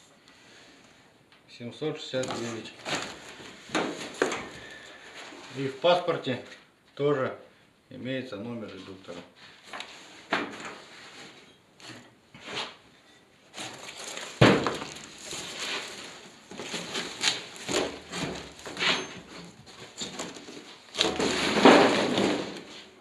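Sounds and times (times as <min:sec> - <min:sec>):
cardboard crackling and rustling: 0:02.2 - 0:04.5, 0:13.5 - 0:22.8.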